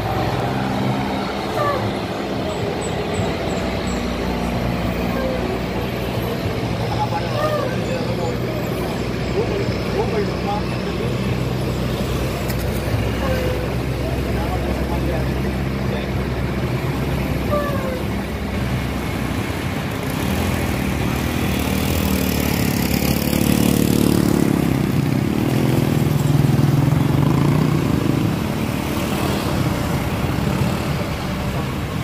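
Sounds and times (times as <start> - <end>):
bus engine and road noise: 0.0 - 32.0
motorcycle passing: 19.5 - 32.0.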